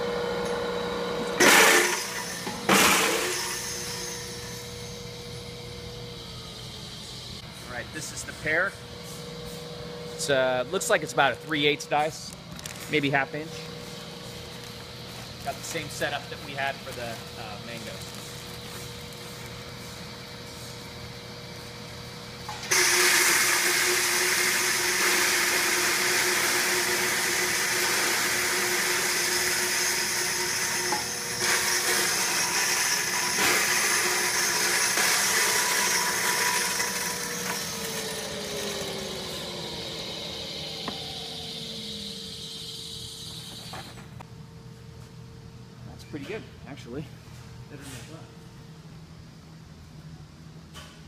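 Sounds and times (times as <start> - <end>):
fruit grinding in shredder: 0.0 - 4.5, 22.5 - 42.3
industrial machine humming: 0.0 - 44.6
rotor winding down: 22.7 - 43.7.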